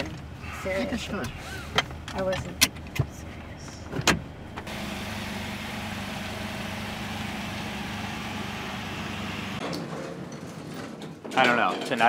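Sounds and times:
car running with hum and hiss: 0:03.2 - 0:09.6.

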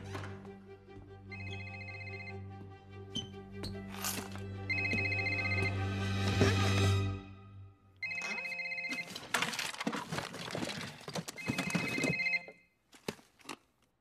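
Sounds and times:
music: 0:00.0 - 0:08.0
electronic phone ringtone: 0:01.3 - 0:02.4, 0:04.7 - 0:05.9, 0:08.0 - 0:09.2, 0:11.4 - 0:12.7.

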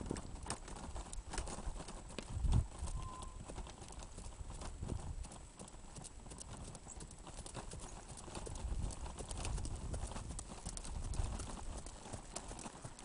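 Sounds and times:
horse hoofbeats on muddy track: 0:00.0 - 0:13.0.

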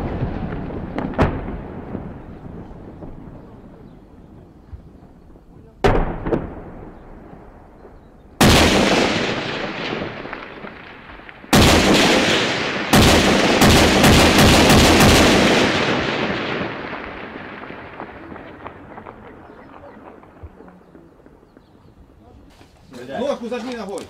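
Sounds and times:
heavy weapons blasts echoing: 0:05.8 - 0:20.4
rapid gunshots: 0:08.4 - 0:10.7, 0:11.5 - 0:19.2.

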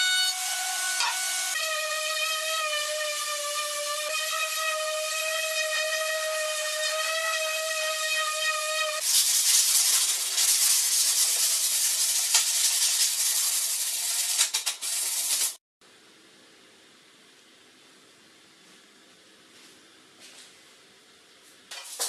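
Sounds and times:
orbital sander whine: 0:00.0 - 0:09.0
sandpaper rubbing on wood: 0:09.0 - 0:15.6.

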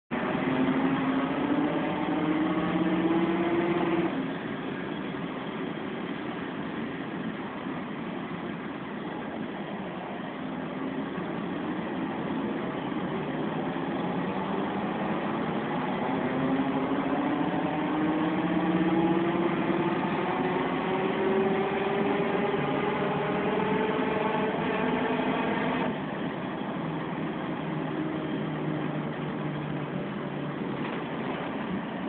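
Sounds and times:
bus engine: 0:00.0 - 0:32.0
gearbox howl rising in pitch: 0:00.2 - 0:04.9, 0:13.3 - 0:29.9.

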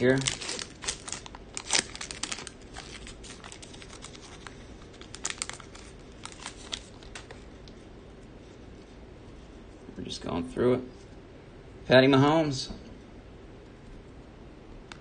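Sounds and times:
foil wrapper crinkling and tearing: 0:00.0 - 0:07.8
sharp wrapper crackles: 0:00.0 - 0:07.8.

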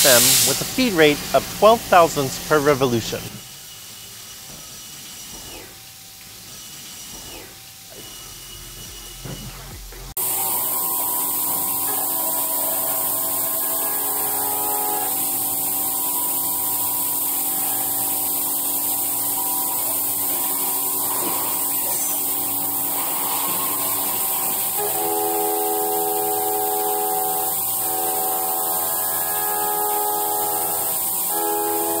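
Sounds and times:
coolant spray hiss: 0:00.0 - 0:03.2, 0:10.2 - 0:32.0
machine tool whine: 0:00.9 - 0:32.0.

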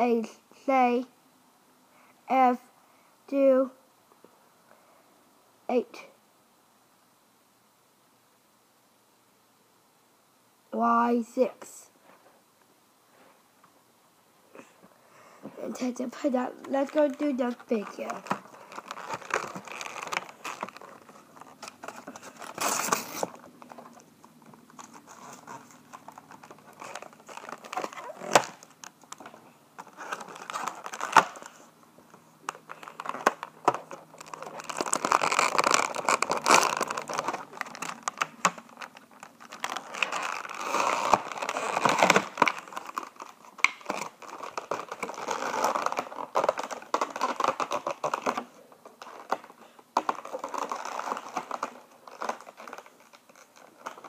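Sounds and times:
plastic packaging crinkling and tearing: 0:16.2 - 0:54.0.

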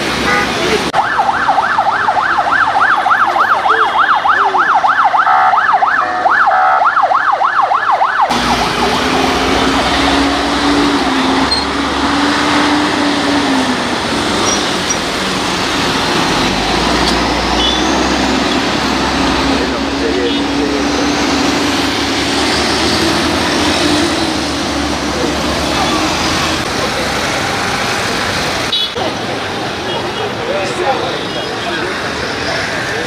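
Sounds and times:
street traffic: 0:00.0 - 0:33.0
vehicle siren yelping: 0:00.9 - 0:11.5
heavy vehicle engines droning: 0:08.0 - 0:33.0.

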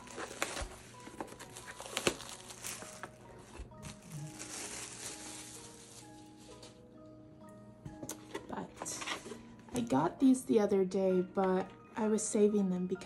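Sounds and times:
plastic shrink wrap crinkling: 0:00.0 - 0:06.6.

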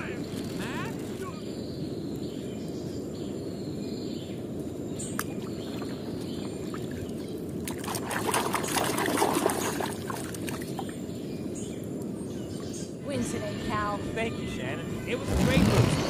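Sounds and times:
water splashing in plastic tub: 0:07.6 - 0:10.9
low background rush: 0:10.0 - 0:16.0.

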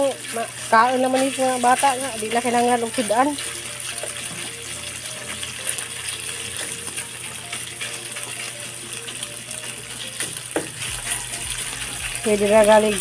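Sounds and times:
meat sizzling in hot oil: 0:00.0 - 0:13.0.

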